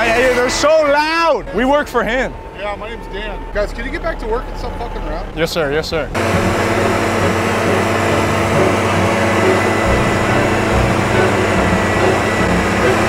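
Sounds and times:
leaf blowers running: 6.2s - 13.0s.

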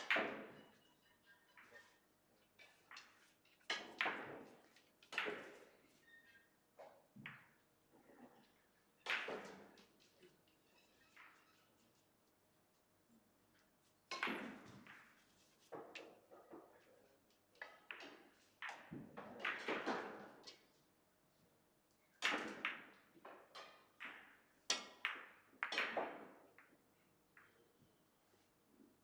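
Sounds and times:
billiard balls clacking: 2.6s - 5.7s.

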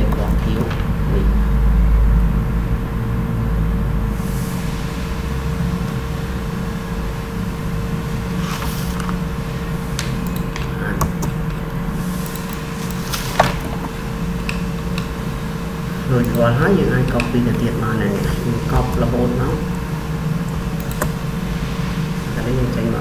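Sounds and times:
low hum and rumble: 0.0s - 23.0s
sharp clicks: 10.0s - 11.6s, 12.2s - 13.8s, 20.8s - 21.2s.

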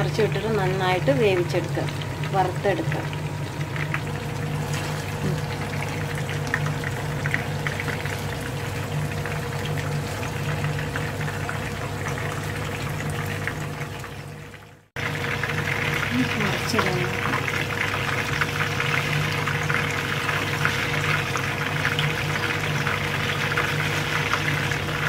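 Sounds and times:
steady low hum: 0.0s - 13.6s
chicken frying in hot oil: 0.0s - 25.0s.

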